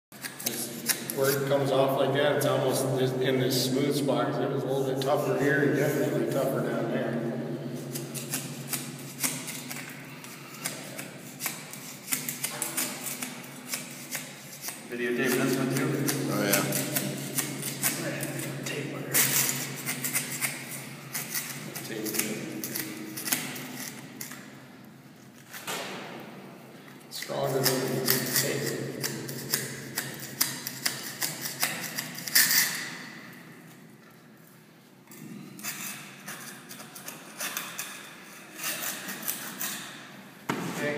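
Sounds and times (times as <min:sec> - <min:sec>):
metal scraper scratching concrete: 0:07.9 - 0:24.4, 0:27.3 - 0:32.9, 0:35.4 - 0:39.9.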